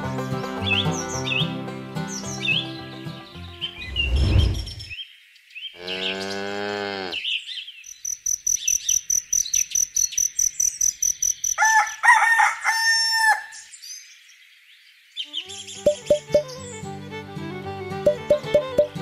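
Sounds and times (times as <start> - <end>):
rooster crowing: 11.6 - 13.6
high trill with quick ticks: 15.9 - 16.6.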